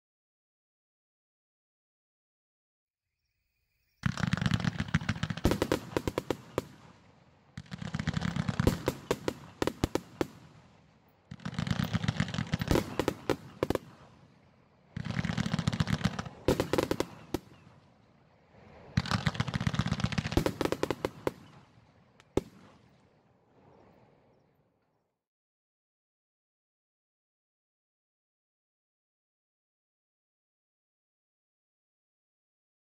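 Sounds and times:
fireworks crackle: 3.9s - 14.4s, 15.0s - 17.7s, 19.0s - 22.9s
fireworks firing in volleys: 3.9s - 18.0s, 18.8s - 23.2s
sharp firework report: 3.9s - 23.9s.

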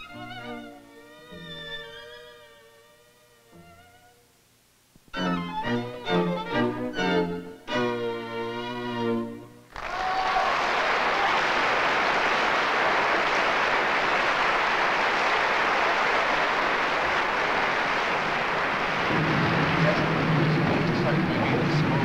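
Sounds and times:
string quartet chord with vibrato: 5.1s - 9.6s
audience applause: 9.7s - 22.0s.

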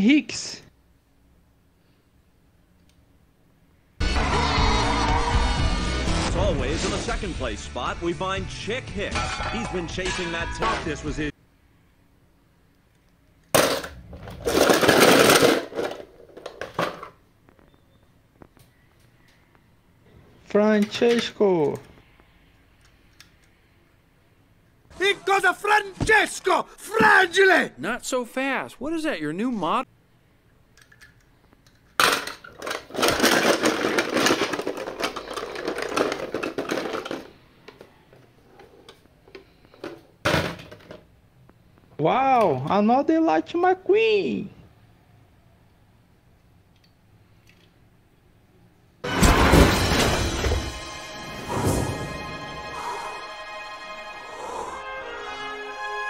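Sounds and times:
toy cars clattering in a plastic tub: 13.6s - 17.2s, 31.7s - 37.8s.

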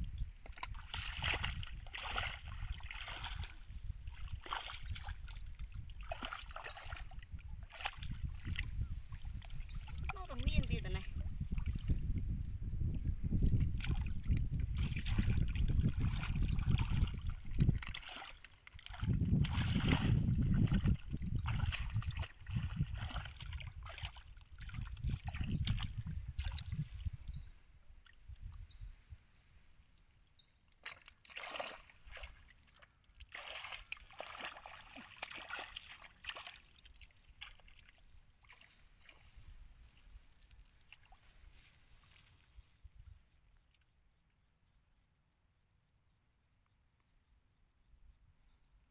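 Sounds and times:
hands splashing in muddy water: 0.4s - 12.0s, 13.4s - 27.2s, 30.7s - 42.5s.

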